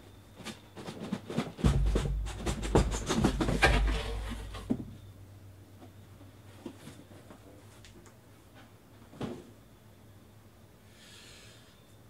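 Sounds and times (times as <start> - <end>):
cardboard cases knocking and scraping: 0.5 - 5.0.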